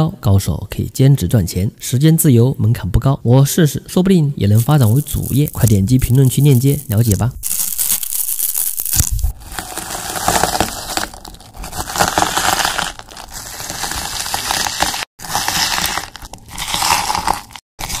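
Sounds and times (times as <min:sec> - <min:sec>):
wet crunching of crushed fruit: 0:04.6 - 0:18.0.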